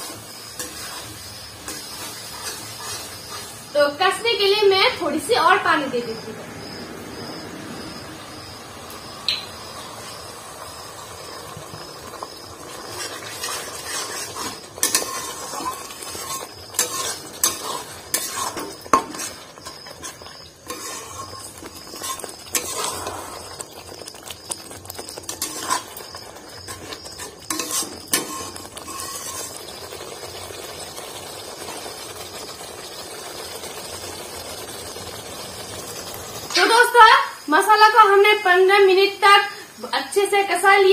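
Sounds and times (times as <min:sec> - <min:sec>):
metal spatula scraping pan: 0:00.0 - 0:03.7, 0:12.8 - 0:24.0, 0:24.6 - 0:29.8
food sizzling: 0:00.0 - 0:40.9.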